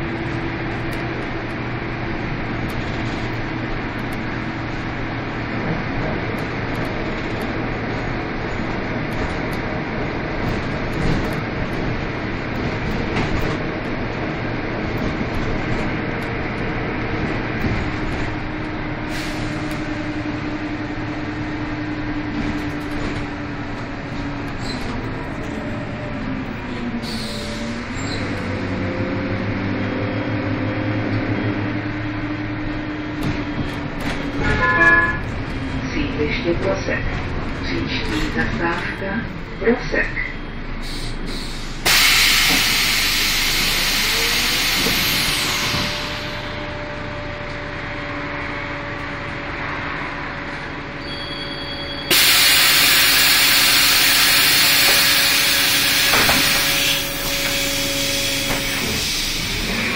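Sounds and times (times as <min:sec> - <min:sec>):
bus engine drone: 0:00.0 - 0:59.9
road rumble: 0:00.0 - 0:59.9.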